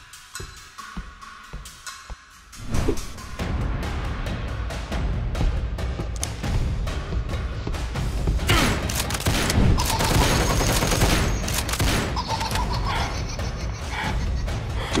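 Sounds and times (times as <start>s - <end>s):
background music with low beat: 0.0s - 15.0s
rapid gunfire: 8.5s - 12.4s.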